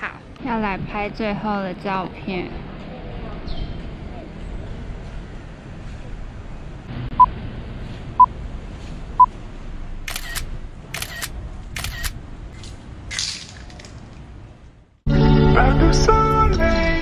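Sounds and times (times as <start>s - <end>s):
camera shutter clicks: 10.1s - 12.2s.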